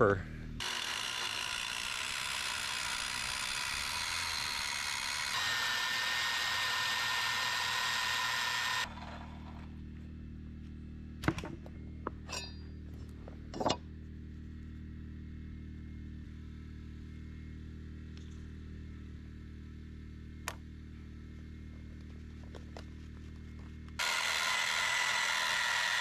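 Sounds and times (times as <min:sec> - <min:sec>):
steady low hum: 0:00.0 - 0:05.5, 0:08.4 - 0:25.8
circular saw cutting wood: 0:00.6 - 0:09.7, 0:24.0 - 0:26.0.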